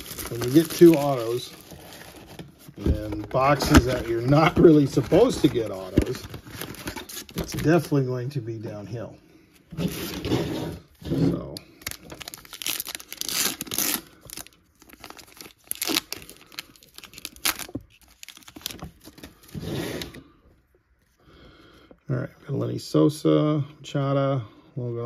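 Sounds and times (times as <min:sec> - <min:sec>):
plastic wrapper tearing and crinkling: 0:00.0 - 0:07.8, 0:11.5 - 0:20.1.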